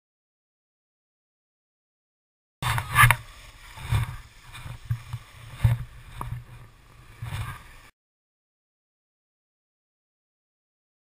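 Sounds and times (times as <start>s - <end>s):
skis sliding over snow: 2.6s - 7.9s
wind buffeting microphone: 2.6s - 7.9s.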